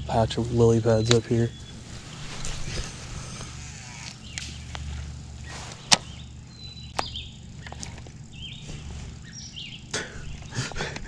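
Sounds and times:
birds chirping: 0:00.0 - 0:11.0
sharp click: 0:05.8 - 0:06.1.

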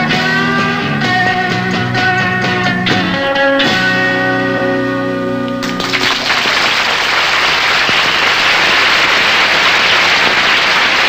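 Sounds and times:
audience applauding: 0:05.6 - 0:11.0.

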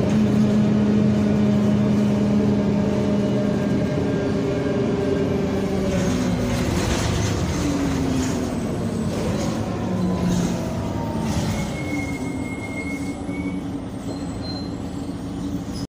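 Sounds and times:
diesel bus engine running: 0:00.0 - 0:15.9
high squeal: 0:08.2 - 0:15.9.

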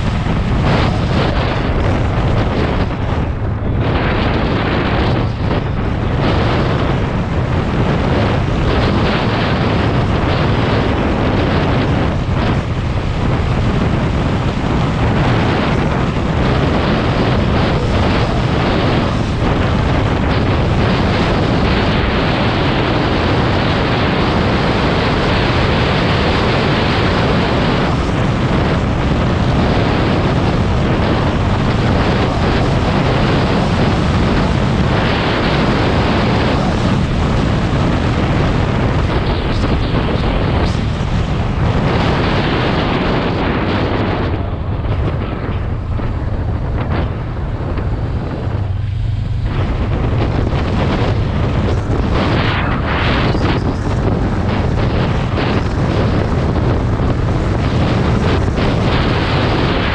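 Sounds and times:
low rumble: 0:00.0 - 0:59.9
wind buffeting microphone: 0:00.0 - 0:59.9.

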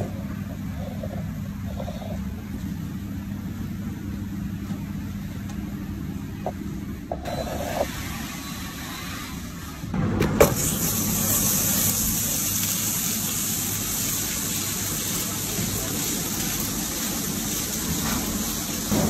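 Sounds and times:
butter sizzling in a pan: 0:10.6 - 0:19.0.

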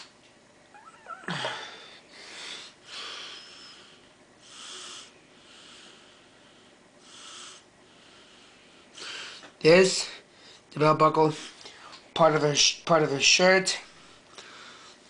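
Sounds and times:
person breathing close: 0:01.2 - 0:09.5.

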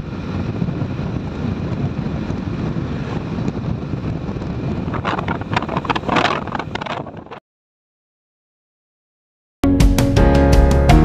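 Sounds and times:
road noise: 0:00.0 - 0:07.4
wind buffeting microphone: 0:00.0 - 0:07.4.

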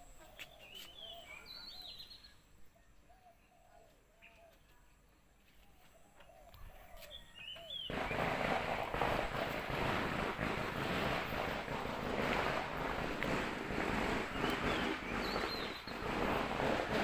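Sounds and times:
birds chirping faintly: 0:00.0 - 0:08.2, 0:13.8 - 0:16.4.

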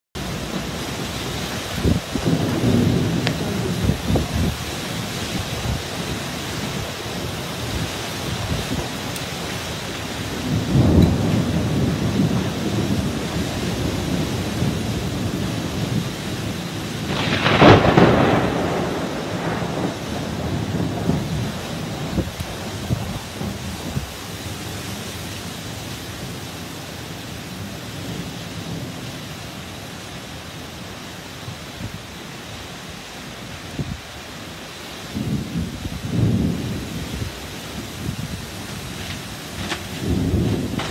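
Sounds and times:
low thunder rumble: 0:00.2 - 0:25.0, 0:35.0 - 0:40.9
heavy rain: 0:00.2 - 0:40.9
storm winds: 0:00.2 - 0:40.9
wind buffeting microphone: 0:00.5 - 0:25.2, 0:35.0 - 0:40.9.

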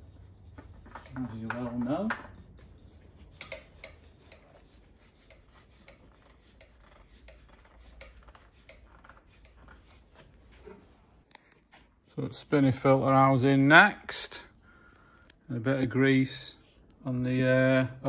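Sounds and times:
oil filter rubbing and clicking: 0:00.0 - 0:10.3.

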